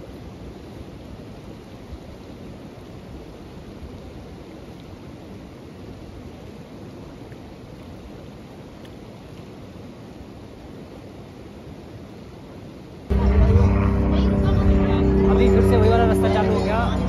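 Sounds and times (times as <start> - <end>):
steady low rushing noise: 13.1 - 17.0.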